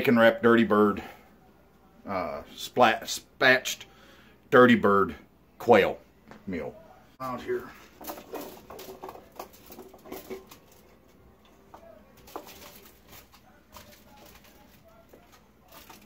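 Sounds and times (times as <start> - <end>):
vegetables clattering into a dish: 7.8 - 16.0.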